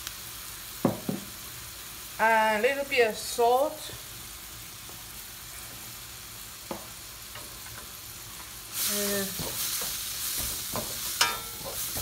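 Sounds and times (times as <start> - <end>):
food sizzling in a wok: 0.0 - 12.0
spatula scraping a wok: 8.8 - 12.0.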